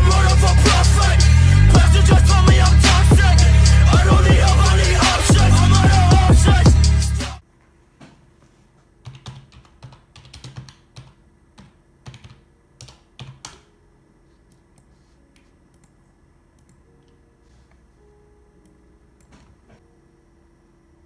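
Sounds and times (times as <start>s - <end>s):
keyboard typing clicks: 9.0s - 13.8s.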